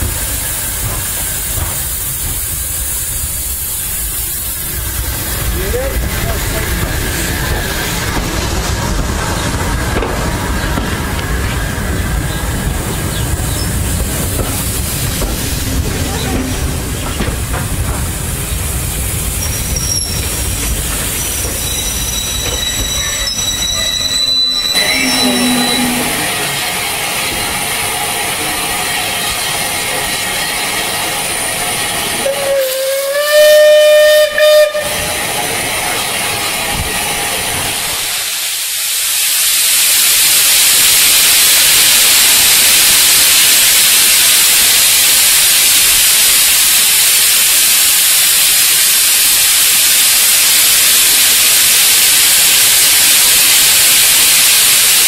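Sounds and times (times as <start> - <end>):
steam hissing: 0.0 - 55.0
passenger coaches rumbling past: 4.1 - 32.7
steam locomotive whistle: 21.7 - 26.6, 32.1 - 35.3.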